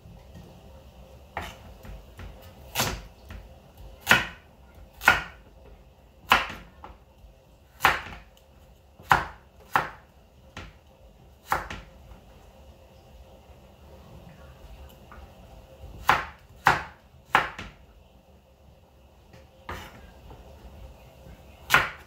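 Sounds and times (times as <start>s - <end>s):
knife chopping on wooden board: 1.4s - 3.4s, 4.0s - 5.5s, 6.3s - 6.8s, 7.8s - 8.3s, 9.0s - 10.0s, 11.4s - 11.9s, 16.0s - 17.8s, 19.7s - 20.1s, 21.7s - 22.0s.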